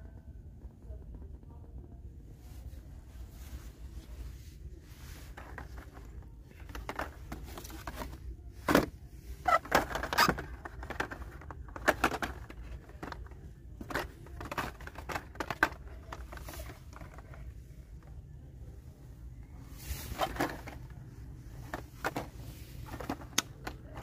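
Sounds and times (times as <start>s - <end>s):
plastic packaging clacking and crinkling: 5.3s - 17.5s.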